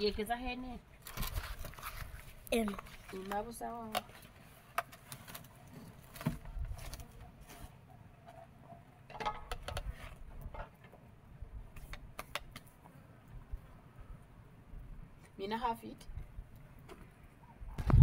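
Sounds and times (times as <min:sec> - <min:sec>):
water sloshing: 0:01.0 - 0:06.3.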